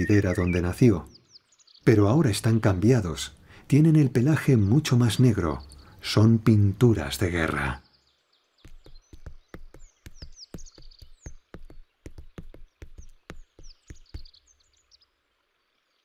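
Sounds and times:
high bird chirps: 0.0 - 2.2, 8.6 - 14.8
hooves clicking on rock: 8.6 - 14.4.

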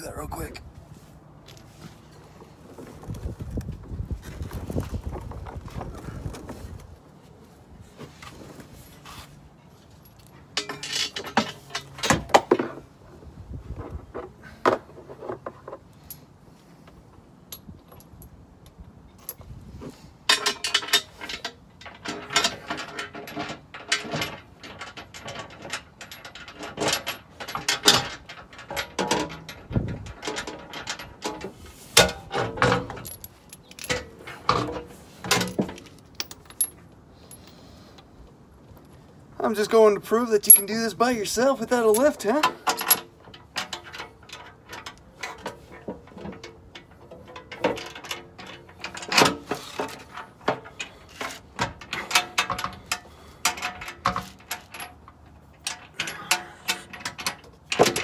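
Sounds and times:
metal plate and bolts clanking: 10.0 - 12.8, 20.3 - 37.6, 40.4 - 58.0.

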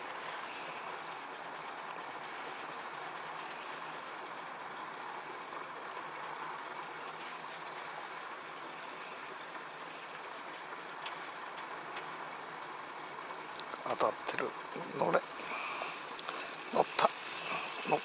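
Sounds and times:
running water rushing: 0.0 - 18.0.

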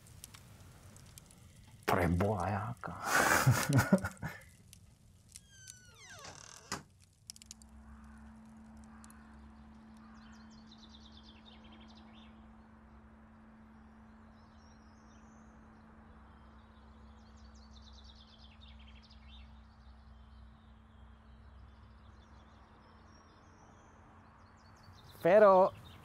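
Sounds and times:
bird chirps: 7.9 - 12.6, 14.1 - 26.0.

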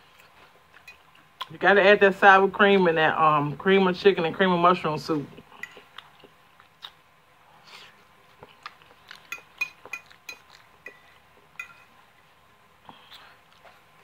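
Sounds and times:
fork clinking on plate: 9.2 - 11.0, 11.6 - 11.9.

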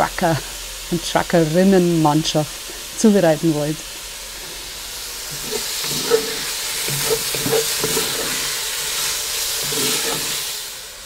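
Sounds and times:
meat sizzling in oil: 0.0 - 11.0
utensil scraping a pot: 4.4 - 10.7.

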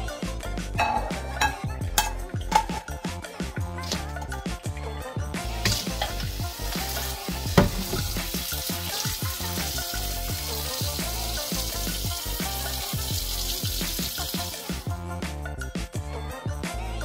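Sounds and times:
background music with a beat: 0.0 - 17.0
water splashing into metal strainer: 5.6 - 14.6.

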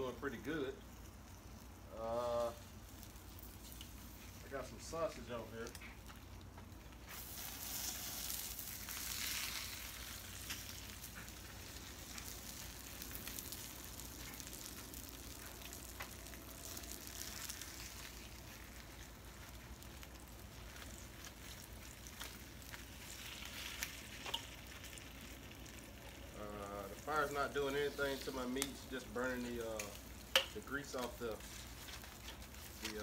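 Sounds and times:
meat sizzling on a grill: 0.0 - 33.0.

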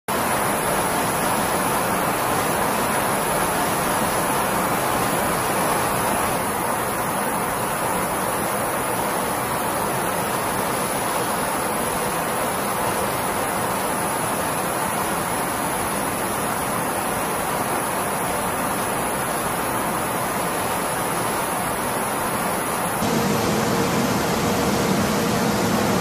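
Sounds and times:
faint high whine: 0.2 - 26.0
jet aircraft rushing noise: 22.6 - 26.0.

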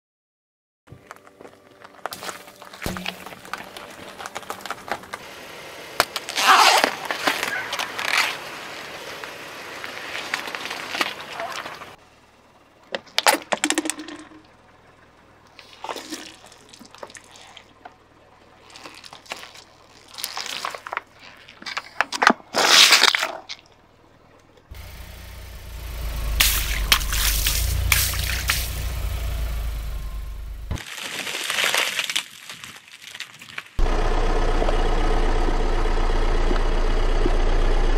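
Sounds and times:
light crackling under tyre: 1.0 - 13.6, 14.3 - 37.9
car engine rumbling: 1.5 - 21.3, 23.8 - 30.8, 33.8 - 37.9
watermelon cracking and crunching: 1.8 - 5.2, 6.0 - 11.8, 15.6 - 17.9, 18.6 - 23.7, 30.8 - 33.8
tyre crushing plastic bottle: 1.9 - 5.2, 30.8 - 33.8
paint squishing spurt: 15.6 - 17.8, 18.6 - 21.7.

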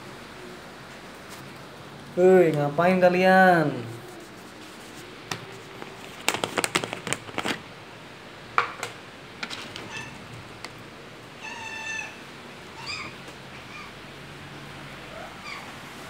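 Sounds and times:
cat meowing: 9.8 - 10.2, 11.4 - 14.0.

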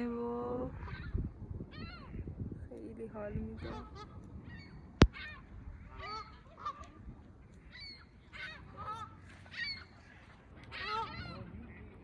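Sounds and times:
geese honking: 3.6 - 6.9, 7.6 - 12.0.

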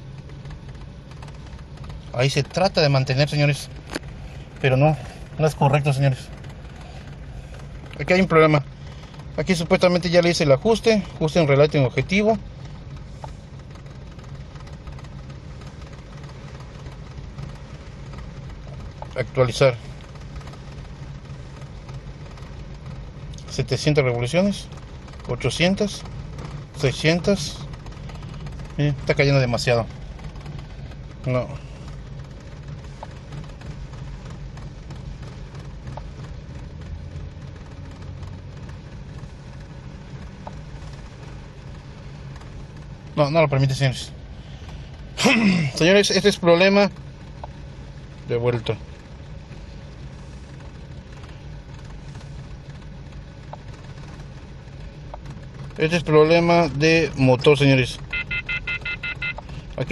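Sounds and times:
car engine idling: 0.0 - 59.9.

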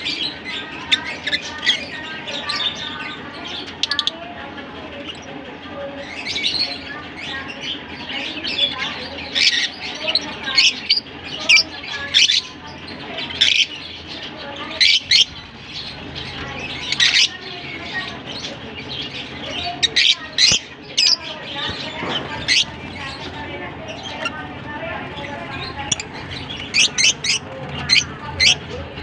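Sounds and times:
lovebirds chirping and squawking: 0.0 - 29.0.

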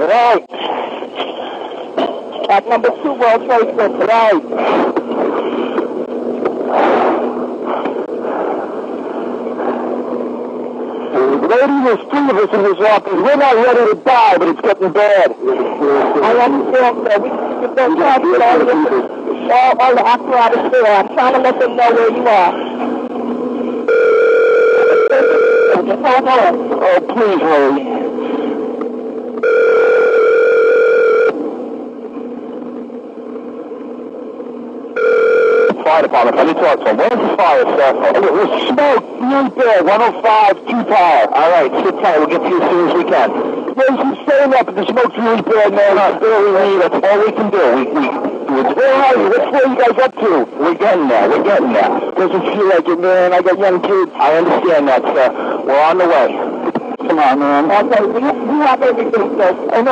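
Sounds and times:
constant low hum: 0.0 - 59.9
telephone ringback tone: 23.9 - 25.9, 29.4 - 31.4, 35.0 - 35.8.

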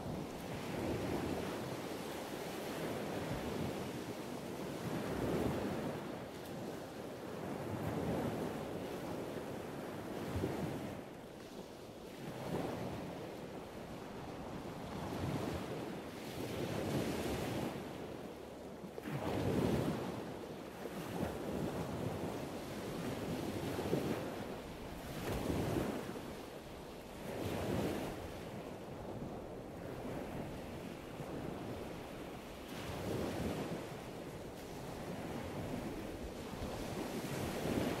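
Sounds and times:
wind buffeting microphone: 27.2 - 38.0.

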